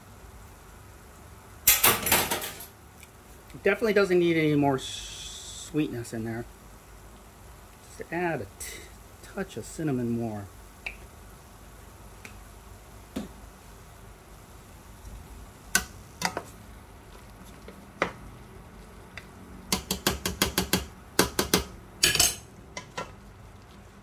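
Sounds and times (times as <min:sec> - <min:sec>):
metal spoon clinking in pot: 0:22.0 - 0:22.9.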